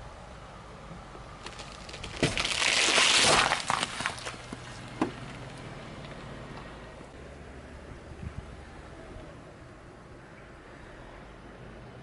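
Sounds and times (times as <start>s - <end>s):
watermelon cracking and bursting: 1.4s - 4.5s
crunching and splattering: 1.4s - 4.8s.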